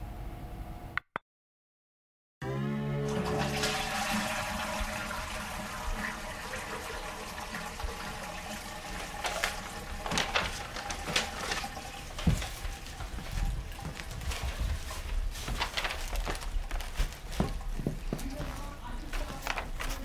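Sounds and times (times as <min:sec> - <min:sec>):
water rushing: 0:03.1 - 0:14.0.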